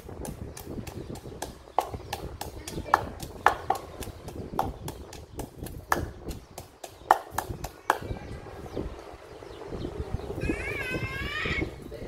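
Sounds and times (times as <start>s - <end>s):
wooden pestle pounding in mortar: 0.0s - 8.2s.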